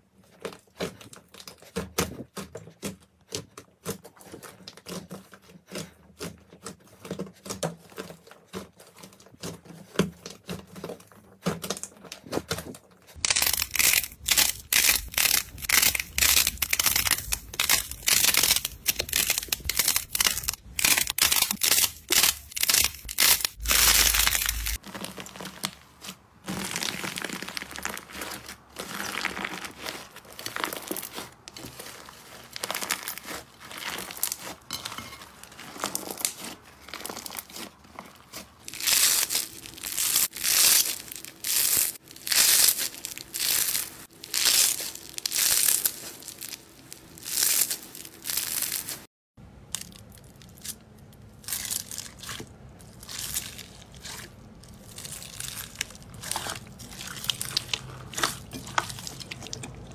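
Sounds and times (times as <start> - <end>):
slime squeezed crackling: 13.1 - 59.9.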